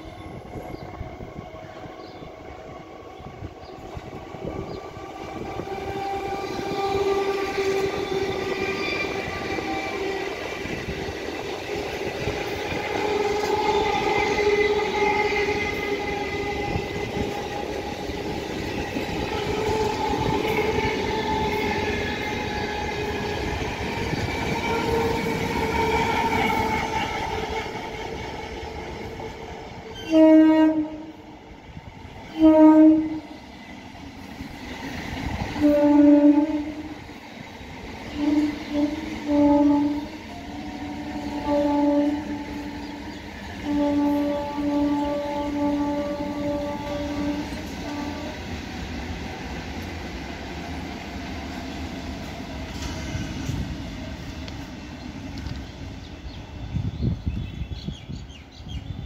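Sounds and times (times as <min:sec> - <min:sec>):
train wheels rolling: 0:00.0 - 0:58.7
train motor whine: 0:03.4 - 0:28.2
train horn blasts: 0:04.4 - 0:10.9, 0:11.7 - 0:23.7, 0:24.5 - 0:27.9, 0:29.9 - 0:31.2, 0:32.2 - 0:33.4, 0:35.6 - 0:37.0, 0:38.1 - 0:48.6.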